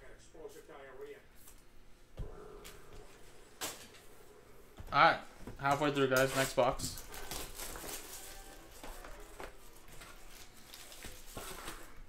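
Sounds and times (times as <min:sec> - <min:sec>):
faint background music: 0:03.5 - 0:12.0
hands rustling and clicking packaging: 0:05.6 - 0:12.0.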